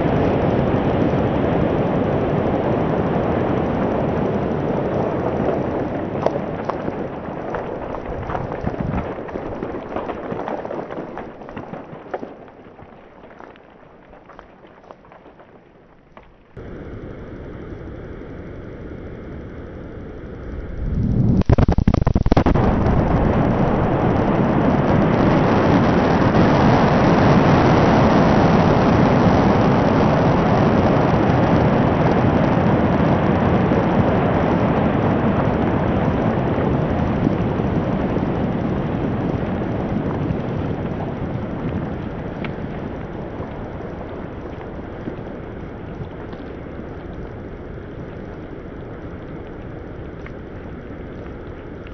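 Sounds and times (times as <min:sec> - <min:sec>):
long loud rumble: 0:00.0 - 0:11.6, 0:16.5 - 0:51.9
rock blast with sharp cracks: 0:00.0 - 0:17.2, 0:20.7 - 0:51.9
faint hum: 0:00.0 - 0:51.9.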